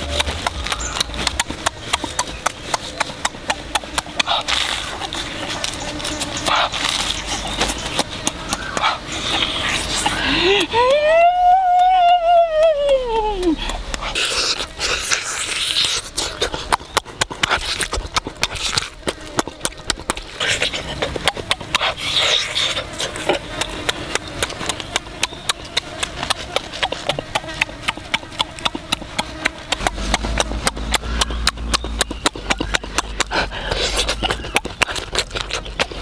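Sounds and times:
wet chewing and lip smacks: 0.0s - 10.7s, 12.7s - 36.0s
sniffs and nose breathing: 0.5s - 10.8s, 13.5s - 19.0s, 20.2s - 24.0s, 29.2s - 36.0s.

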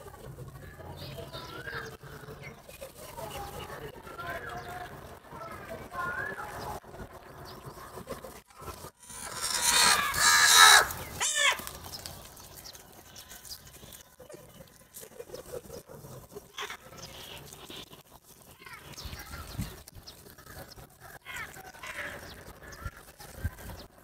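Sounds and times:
crows calling: 9.0s - 12.0s.

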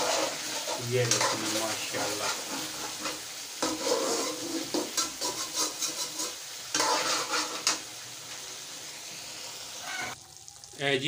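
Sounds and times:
metal spatula scraping a pan: 0.0s - 8.0s
curry sizzling: 0.0s - 11.0s.

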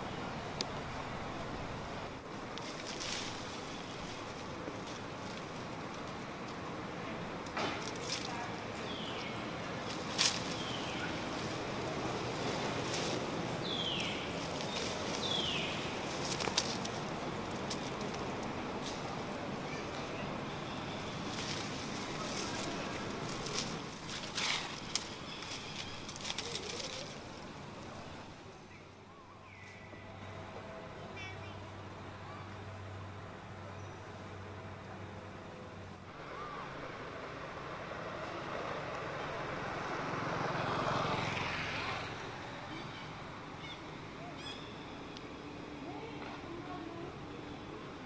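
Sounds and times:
vehicle passing: 0.0s - 28.5s, 30.0s - 48.0s
leaves and branches rustling: 0.0s - 48.0s
branches snapping: 2.5s - 6.6s, 7.4s - 19.2s, 20.6s - 27.6s.

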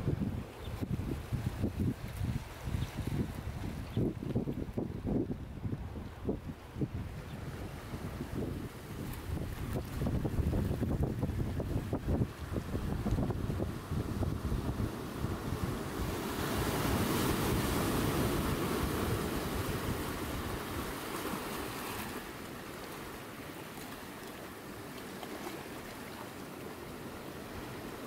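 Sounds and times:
wind buffeting microphone: 0.0s - 21.1s
sea waves washing: 7.6s - 28.0s.

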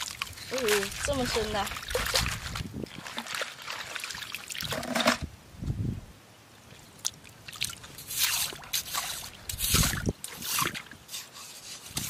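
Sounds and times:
rubber boots squelching in water: 0.0s - 5.0s, 7.1s - 11.0s
mud and water splashing: 0.0s - 5.3s, 6.6s - 12.0s.

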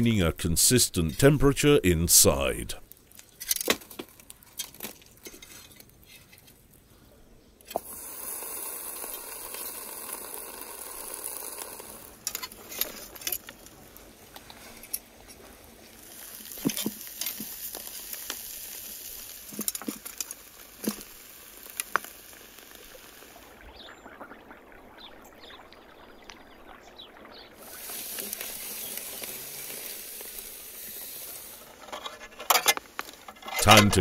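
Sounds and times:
hot stones sizzling on meat: 7.7s - 34.0s.

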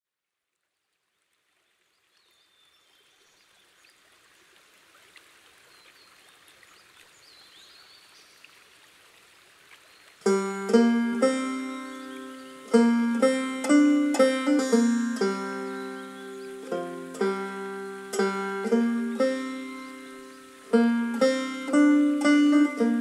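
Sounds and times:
faint background hiss: 0.2s - 23.0s
clawhammer banjo playing: 10.2s - 23.0s.

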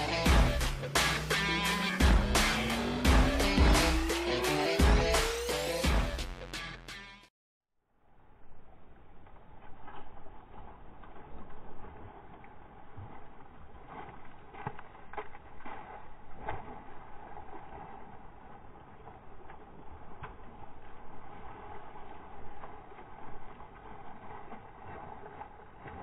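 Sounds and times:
boat and open-water noise: 0.0s - 6.0s, 7.9s - 26.0s.

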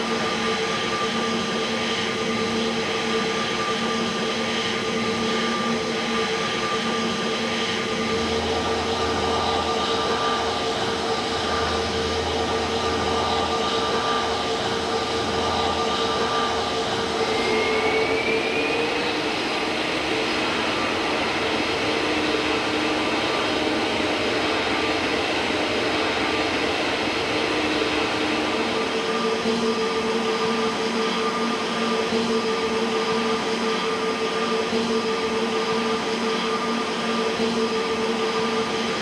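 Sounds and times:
jet engines whining: 7.5s - 31.4s.

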